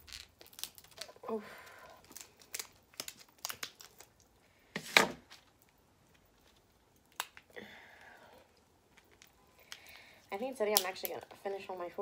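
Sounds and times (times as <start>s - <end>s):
shell cracking: 0.1s - 1.2s, 2.0s - 4.3s, 6.4s - 7.5s.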